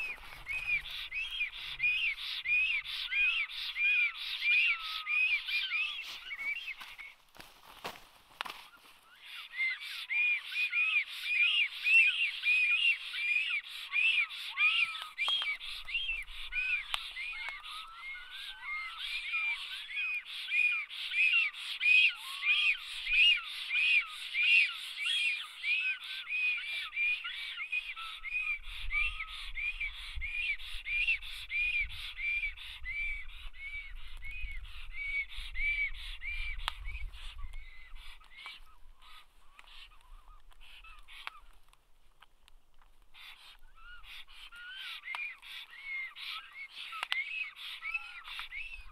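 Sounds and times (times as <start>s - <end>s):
storks giving wheezy whistled calls: 0.0s - 7.1s, 9.1s - 33.0s, 43.2s - 48.9s.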